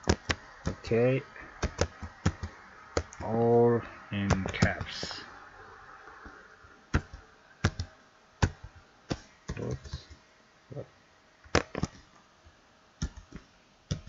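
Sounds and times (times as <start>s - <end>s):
computer keyboard keystrokes: 0.0s - 0.8s, 1.6s - 3.4s, 6.9s - 10.2s, 11.5s - 12.1s, 13.0s - 14.0s.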